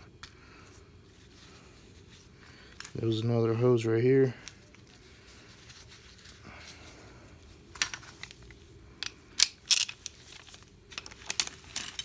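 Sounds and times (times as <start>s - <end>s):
faint rag rubbing: 4.6s - 7.3s.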